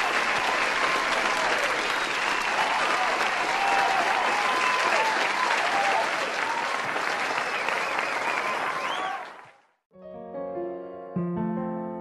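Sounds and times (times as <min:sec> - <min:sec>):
crowd applauding: 0:00.0 - 0:09.8
whoops: 0:00.8 - 0:09.4
soft electric piano music: 0:10.0 - 0:12.0.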